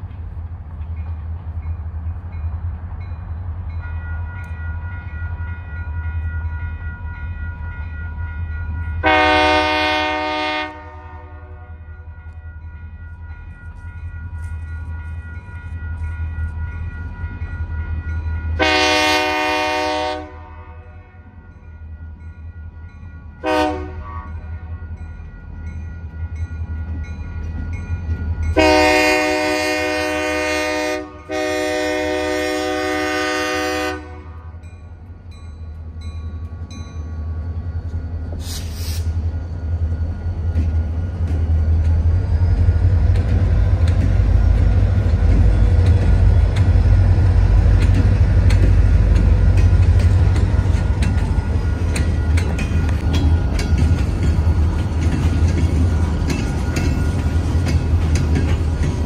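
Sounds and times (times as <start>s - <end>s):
low rumble of train: 0.0s - 59.0s
crossing bell ringing: 0.9s - 38.4s, 39.1s - 59.0s
locomotive air horn blasts: 9.0s - 11.8s, 18.6s - 21.2s, 23.4s - 24.4s, 28.6s - 34.6s.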